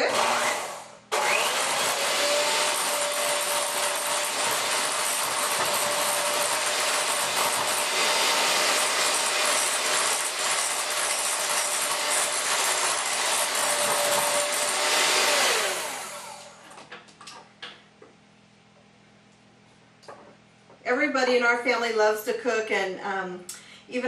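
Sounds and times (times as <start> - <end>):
electric hand mixer whining: 0.0 - 16.8.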